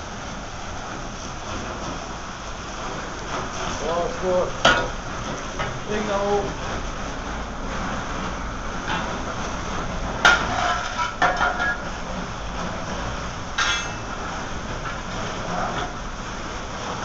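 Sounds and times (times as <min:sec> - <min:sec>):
hiss and rumble of hot heap: 0:00.0 - 0:17.0
sharp metal clank: 0:13.6 - 0:14.1.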